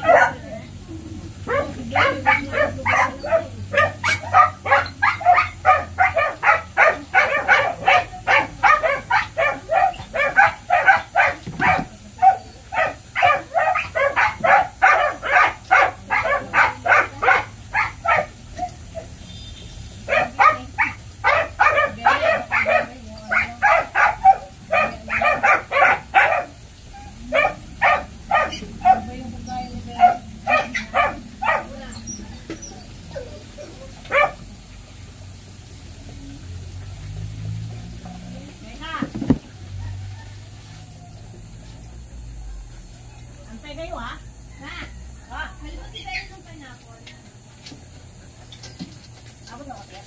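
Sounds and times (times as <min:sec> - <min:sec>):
dog barking rapidly: 0:00.0 - 0:00.6, 0:01.4 - 0:19.2, 0:20.0 - 0:26.6, 0:27.3 - 0:32.2, 0:34.1 - 0:34.5.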